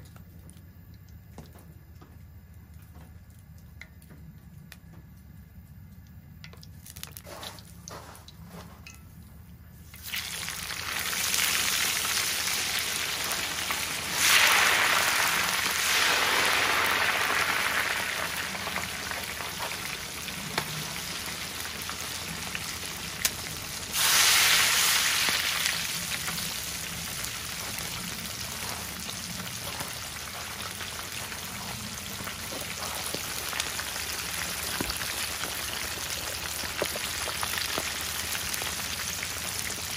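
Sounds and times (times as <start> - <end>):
hot oil sizzling and bubbling: 9.8 - 39.9.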